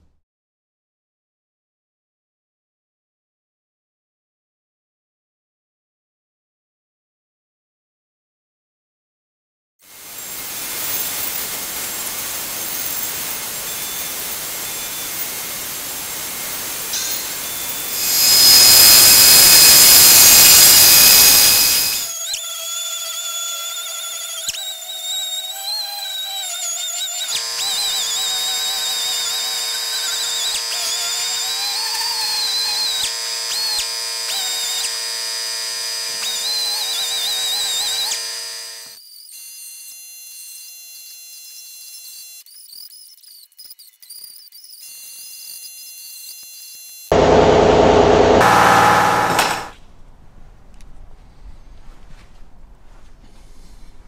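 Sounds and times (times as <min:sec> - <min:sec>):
orbital sander whining: 0:17.2 - 0:22.1, 0:47.1 - 0:49.8
rushing machine noise: 0:17.5 - 0:22.1, 0:47.1 - 0:49.8.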